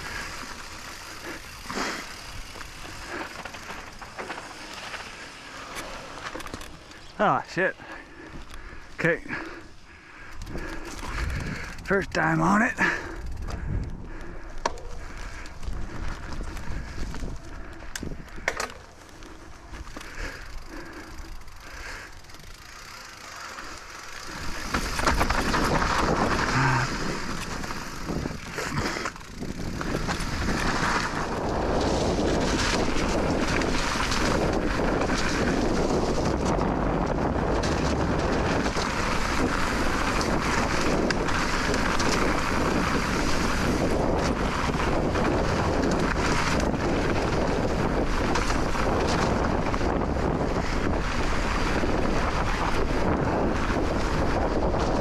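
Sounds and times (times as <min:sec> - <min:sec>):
bike clicks and rattles: 0:00.0 - 0:55.0
wind noise on microphone: 0:10.4 - 0:11.9, 0:12.8 - 0:18.5, 0:24.3 - 0:55.0.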